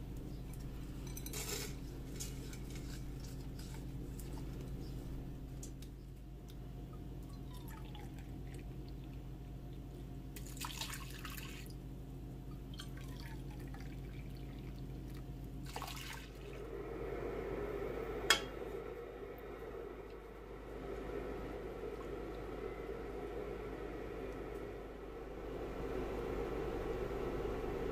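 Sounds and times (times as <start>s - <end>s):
water pouring into a metal pot: 10.4s - 11.8s, 15.6s - 16.6s.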